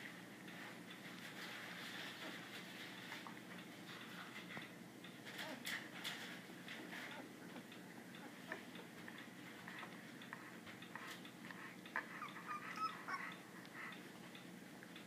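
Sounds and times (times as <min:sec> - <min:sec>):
puppies clicking: 0:01.2 - 0:14.1
puppies squeaking: 0:12.0 - 0:13.4.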